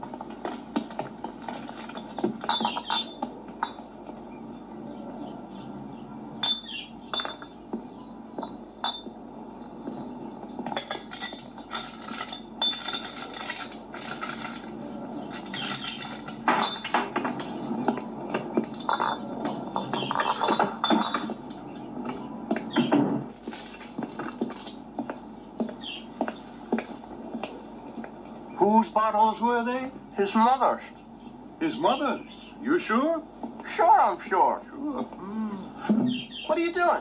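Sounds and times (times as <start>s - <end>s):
glass bottles clinking: 0.8s - 3.8s, 6.4s - 7.6s, 8.4s - 9.2s, 10.6s - 17.4s, 18.3s - 21.4s.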